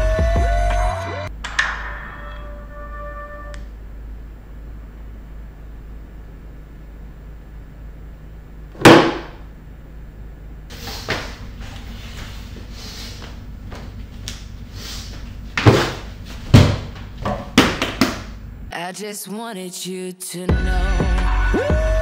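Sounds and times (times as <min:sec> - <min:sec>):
loud knocks: 0:08.8 - 0:09.4.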